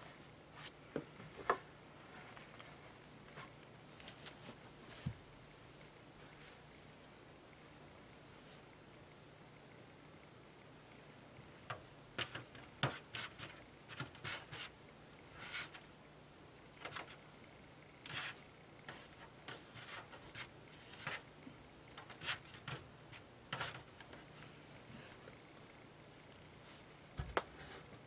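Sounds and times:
rustling and scraping: 0.0s - 5.3s, 18.1s - 21.3s, 21.9s - 25.4s, 26.1s - 28.0s.

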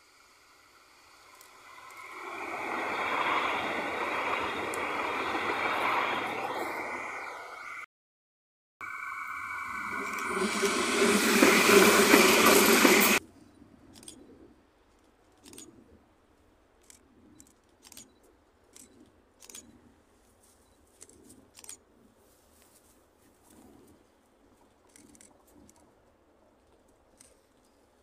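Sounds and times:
tram running on track: 0.0s - 7.9s, 8.8s - 13.2s
faint clicks: 4.6s - 4.9s, 24.6s - 26.0s, 26.6s - 28.0s
high wheel squeal: 8.8s - 13.2s.

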